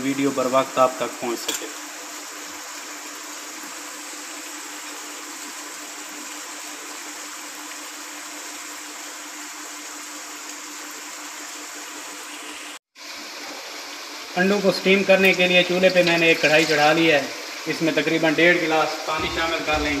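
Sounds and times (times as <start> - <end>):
steady rushing hiss: 13.4 - 20.0.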